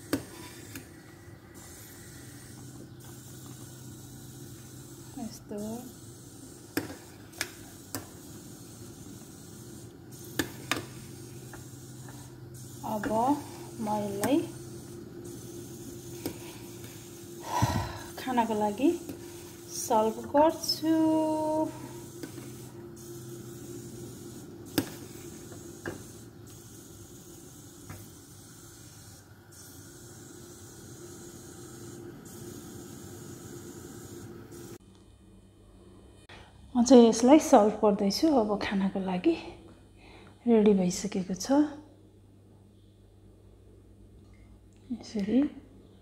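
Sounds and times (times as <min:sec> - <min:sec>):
pot simmering hiss: 0:00.0 - 0:34.8.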